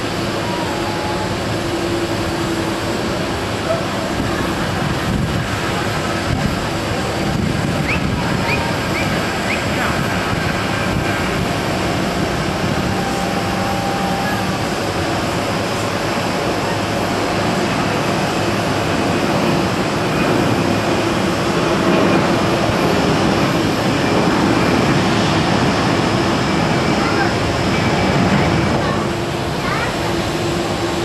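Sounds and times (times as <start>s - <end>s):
jet engines roaring at takeoff: 0.0s - 31.0s.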